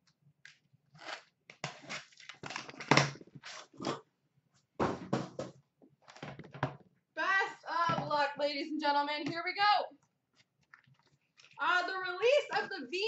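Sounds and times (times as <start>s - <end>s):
box bumping: 4.8s - 5.6s.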